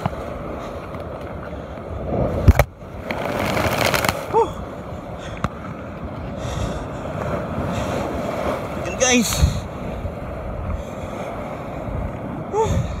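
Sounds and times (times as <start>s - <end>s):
surf washing over rocks: 0.0s - 13.0s
wind buffeting microphone: 0.0s - 13.0s.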